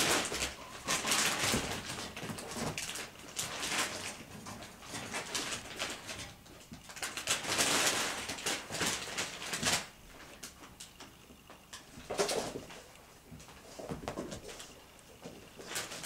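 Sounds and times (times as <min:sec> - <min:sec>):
kittens scuffling on fabric: 0:00.0 - 0:10.7, 0:11.6 - 0:16.0.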